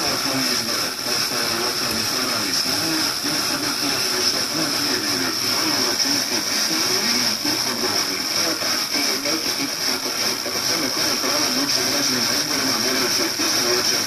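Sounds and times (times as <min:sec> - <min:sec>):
faint voice on radio: 0:00.0 - 0:14.0
radio static hiss: 0:00.0 - 0:14.0.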